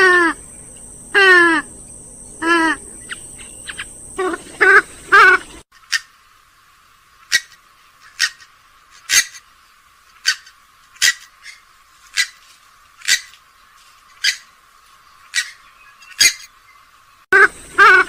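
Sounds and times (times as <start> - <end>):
swamphen short sharp calls: 0.0 - 1.8, 2.4 - 6.2, 7.2 - 9.4, 10.2 - 12.4, 13.0 - 13.4, 14.2 - 14.5, 15.2 - 16.5, 17.4 - 18.0.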